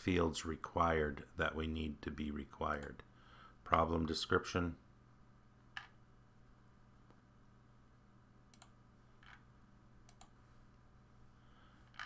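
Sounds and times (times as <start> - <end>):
faint low hum: 0.0 - 12.0
computer mouse clicking: 8.5 - 9.4, 10.0 - 10.4.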